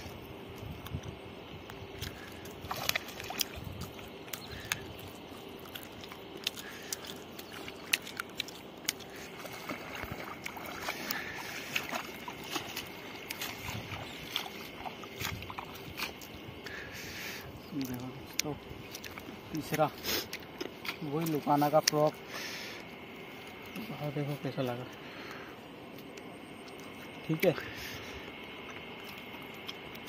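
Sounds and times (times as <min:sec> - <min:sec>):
water sloshing and splashing: 0:01.9 - 0:17.2.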